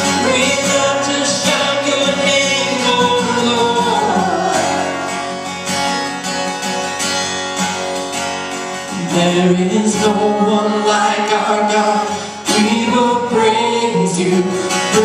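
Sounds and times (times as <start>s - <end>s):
person singing: 0.0s - 5.6s, 8.9s - 15.0s
acoustic guitar strummed: 0.0s - 15.0s.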